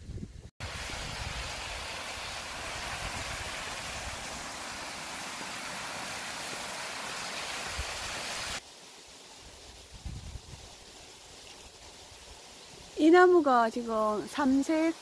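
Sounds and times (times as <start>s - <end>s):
water pouring over rocks: 0.6s - 8.7s.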